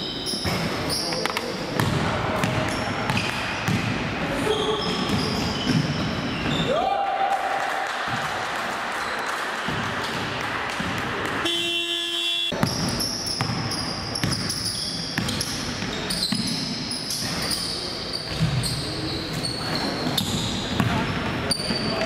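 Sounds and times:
sneakers squeaking: 0.0s - 6.8s, 12.5s - 22.0s
horn-like tone: 11.4s - 12.6s.

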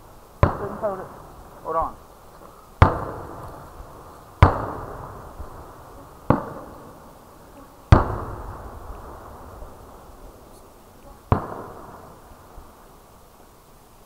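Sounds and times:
fireworks bangs with rolling echo: 0.4s - 2.0s, 2.8s - 7.2s, 7.9s - 10.4s, 11.2s - 12.8s.

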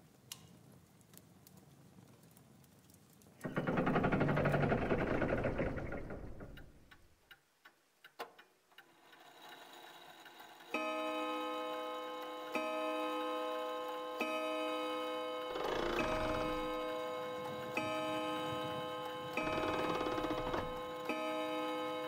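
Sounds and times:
mechanical whirring rush: 15.5s - 20.9s.

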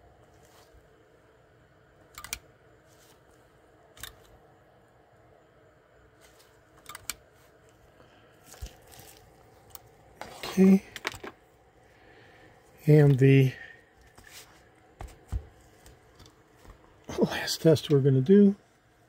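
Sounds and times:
faint steady hum: 0.0s - 19.0s
switch clicks: 2.1s - 2.5s.

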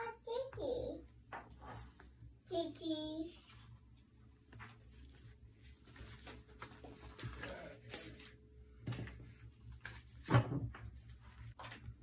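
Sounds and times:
paper sticker sheets rustling: 4.4s - 12.0s.

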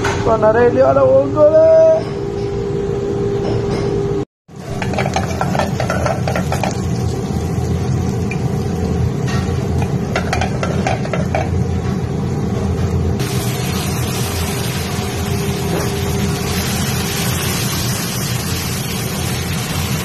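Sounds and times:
garlic sizzling in oil: 4.5s - 11.6s, 13.2s - 20.0s
low kitchen rumble: 4.5s - 20.0s
oil crackling: 4.6s - 8.6s.

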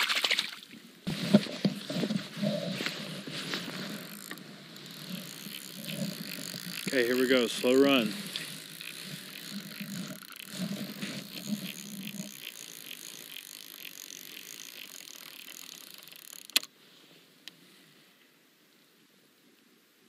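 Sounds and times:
fishing reel clicker ticking: 3.8s - 16.7s.

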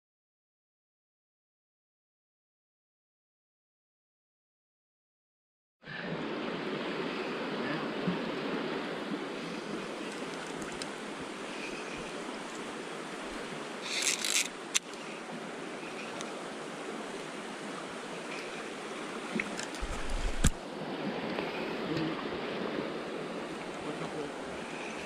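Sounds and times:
river running over rocks: 6.1s - 25.0s.

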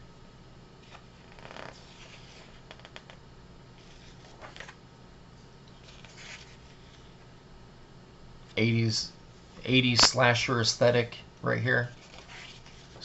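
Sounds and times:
pages turning: 0.8s - 3.2s, 3.8s - 4.8s, 5.8s - 7.2s, 11.8s - 13.0s
paper swishes: 5.8s - 7.1s.

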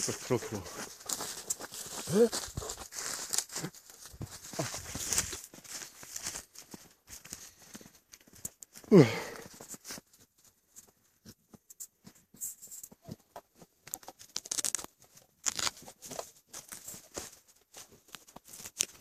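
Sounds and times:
rustling of snow and stems: 0.0s - 10.2s, 15.4s - 19.0s.

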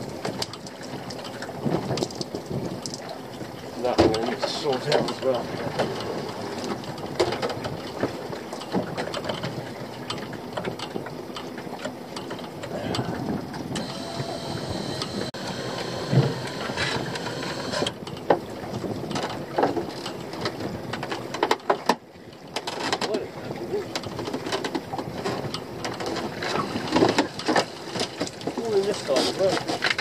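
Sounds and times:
high whine: 13.8s - 17.9s.

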